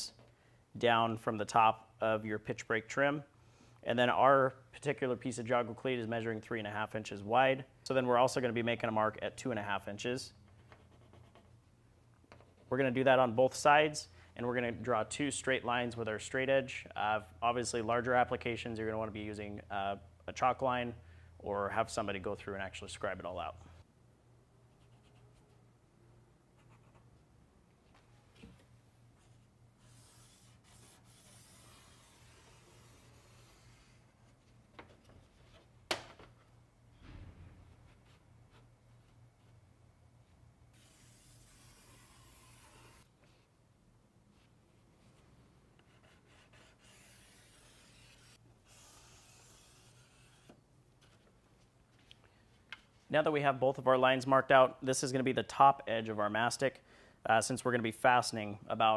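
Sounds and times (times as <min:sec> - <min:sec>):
marker scratching on metal: 0:29.2 - 0:34.1, 0:40.8 - 0:43.1, 0:45.8 - 0:50.6
scratching of line drawn on metal: 0:46.1 - 0:50.6.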